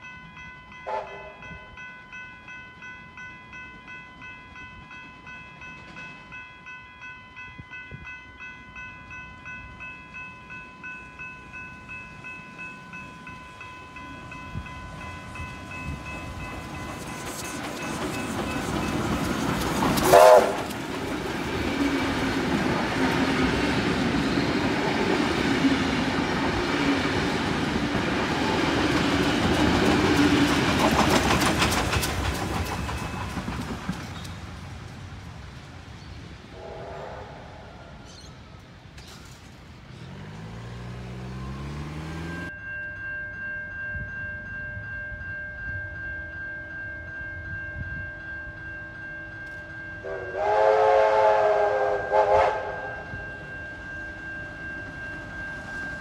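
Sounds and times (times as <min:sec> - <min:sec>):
steam train rumble: 0:07.9 - 0:42.6, 0:46.6 - 0:56.0
steam whistle blast: 0:20.0 - 0:20.7, 0:36.5 - 0:38.0, 0:50.0 - 0:53.2.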